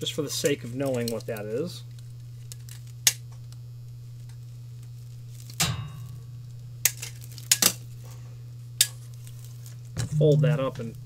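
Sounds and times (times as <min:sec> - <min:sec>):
steady low hum: 0:07.8 - 0:11.0.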